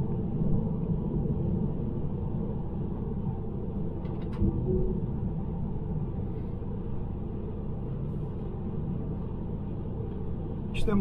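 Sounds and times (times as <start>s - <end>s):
road and tyre rumble in car: 0.0s - 11.0s.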